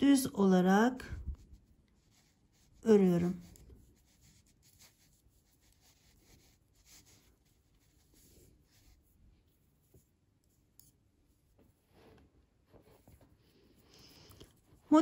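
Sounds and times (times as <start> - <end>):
knitting needles and yarn rustling: 0.0 - 15.0.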